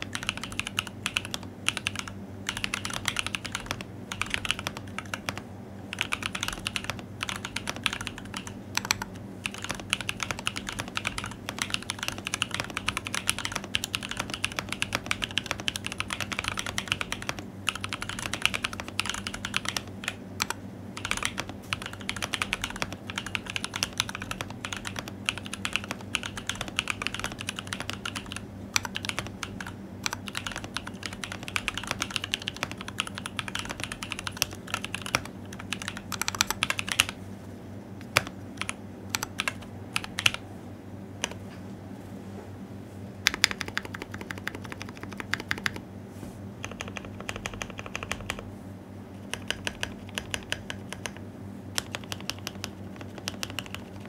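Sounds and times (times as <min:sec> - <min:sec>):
fast mechanical keyboard typing: 0:00.0 - 0:37.2, 0:38.0 - 0:40.4, 0:41.2 - 0:41.4, 0:43.2 - 0:45.8, 0:46.6 - 0:48.4, 0:49.2 - 0:54.0.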